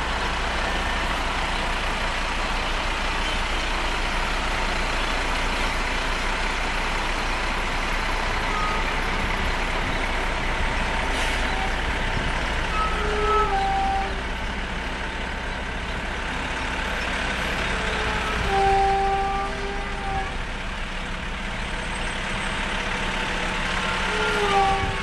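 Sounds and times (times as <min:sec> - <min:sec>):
fire truck diesel engines: 0:00.0 - 0:25.0
short horn blasts: 0:12.7 - 0:14.3, 0:17.7 - 0:20.4, 0:24.1 - 0:25.0.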